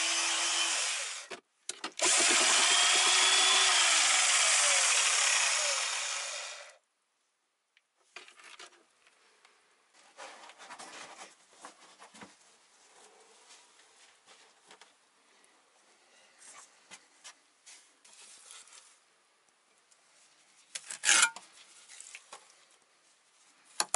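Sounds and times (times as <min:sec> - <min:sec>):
electric drill mixing mortar: 0:00.0 - 0:01.3, 0:02.0 - 0:06.8
faint scrapes and knocks: 0:08.0 - 0:15.0, 0:16.0 - 0:19.1.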